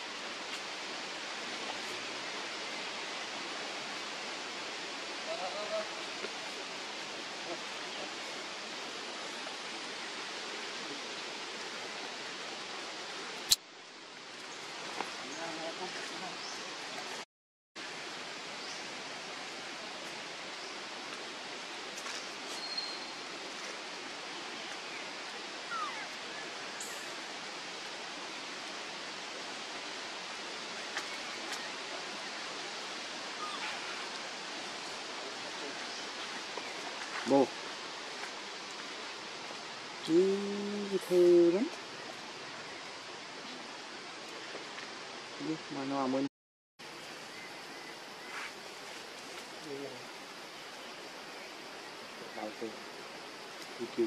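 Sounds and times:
outdoor background hiss: 0:00.0 - 0:54.0.

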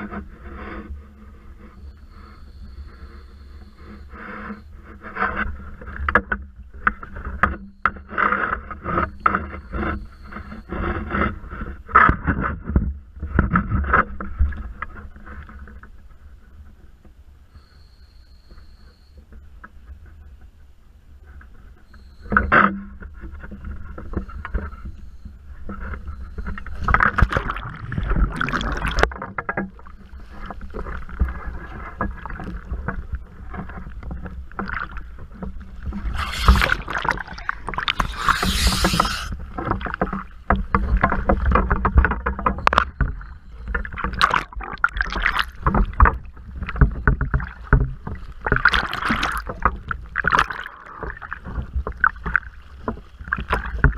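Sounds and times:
water sloshing and splashing: 0:25.7 - 0:53.9
splash into water: 0:27.2 - 0:29.1.

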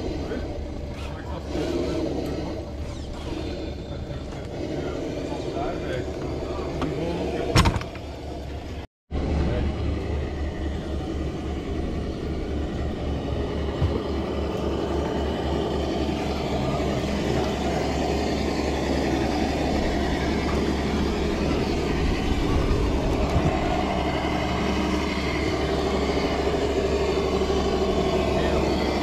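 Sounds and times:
electric motor whirring: 0:00.0 - 0:08.5, 0:09.5 - 0:29.0.

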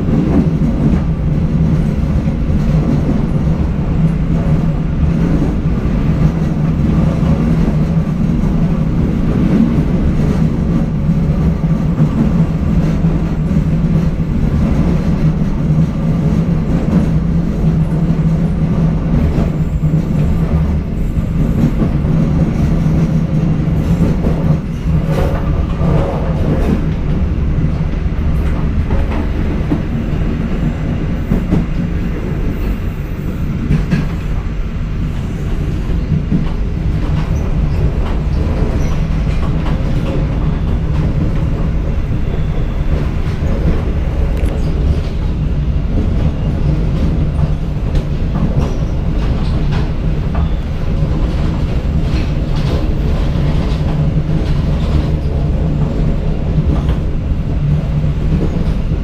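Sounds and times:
rail clacks: 0:00.0 - 0:59.0
train wheel-on-rail rumble: 0:00.0 - 0:59.0.

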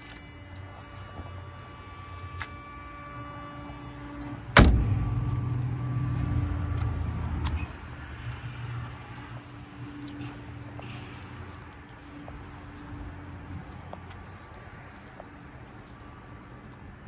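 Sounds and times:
low rumble: 0:04.2 - 0:13.7
car door thud: 0:04.6 - 0:05.2.

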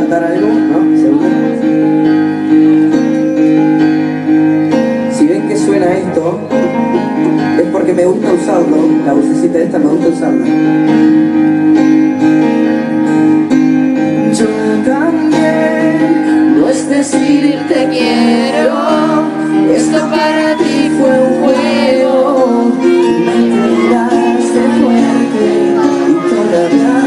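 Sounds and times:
acoustic guitar chords: 0:00.0 - 0:27.0
person singing: 0:14.0 - 0:27.0.

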